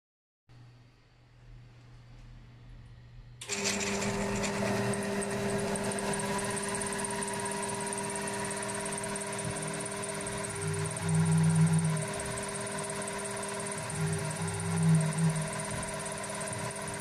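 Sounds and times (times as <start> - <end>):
milling machine motor whining: 3.4 - 17.0.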